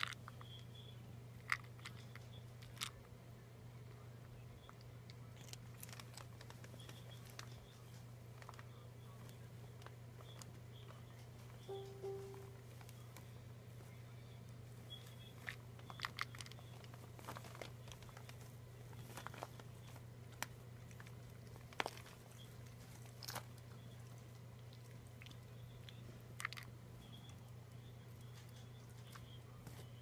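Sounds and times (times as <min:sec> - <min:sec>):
kibble clicking in plastic ball: 0:15.4 - 0:18.4, 0:25.2 - 0:26.7.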